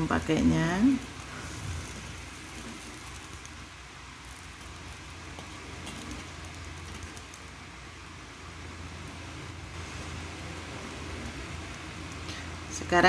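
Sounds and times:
water hissing and bubbling in wok: 0.0s - 13.0s
spatula scraping wok: 1.1s - 3.6s, 4.2s - 7.3s.

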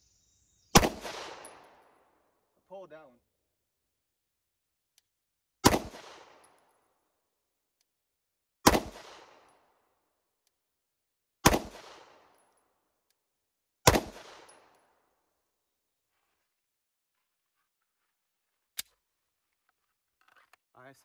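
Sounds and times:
pistol shots: 0.7s - 1.9s, 5.6s - 6.6s, 8.6s - 9.6s, 11.4s - 12.4s, 13.8s - 14.7s.

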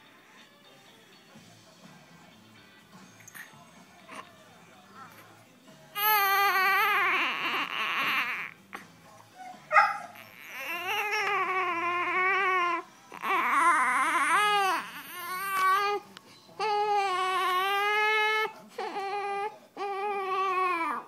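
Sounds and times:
baby crying: 6.0s - 8.6s, 10.1s - 16.0s, 16.6s - 21.0s.

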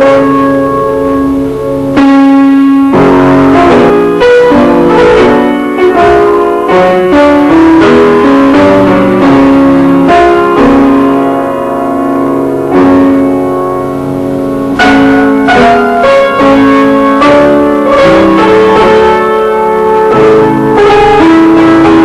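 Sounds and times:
piano playing: 0.0s - 22.0s.

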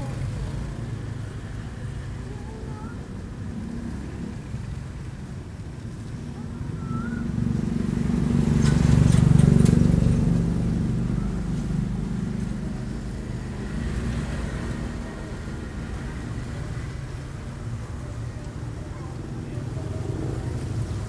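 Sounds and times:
traffic rumble: 0.0s - 21.0s
vehicle engine passing by: 6.6s - 17.3s.

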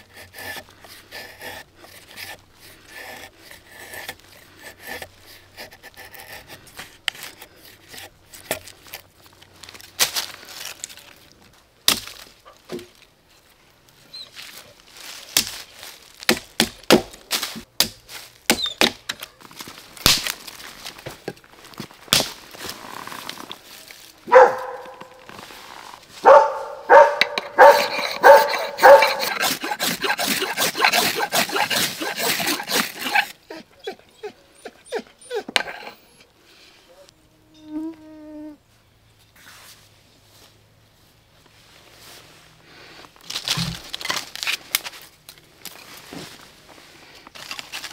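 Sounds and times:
knife working wood: 0.0s - 9.0s, 26.3s - 33.4s, 35.4s - 36.1s
ferrocerium rod scraping: 0.0s - 9.1s, 22.5s - 33.4s, 35.5s - 36.1s
dry sticks being handled: 5.6s - 16.4s, 43.0s - 47.9s.

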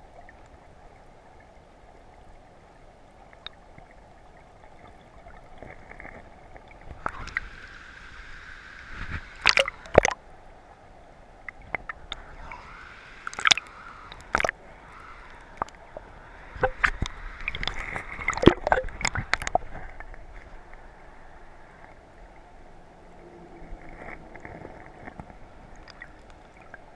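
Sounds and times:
river water sloshing and gurgling: 8.8s - 10.3s, 11.6s - 26.9s.

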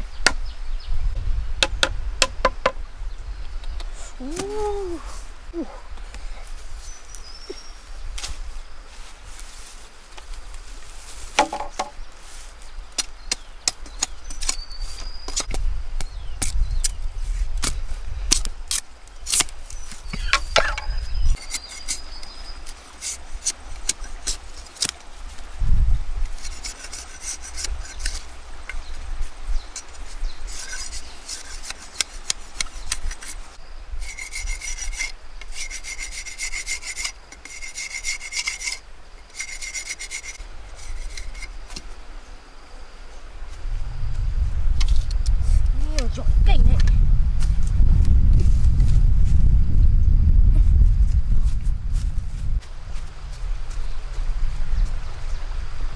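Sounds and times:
machete scraping bamboo: 13.0s - 15.6s, 16.4s - 25.4s, 26.2s - 28.9s, 29.6s - 41.9s
machete splitting bamboo: 17.6s - 19.6s, 23.0s - 25.0s.

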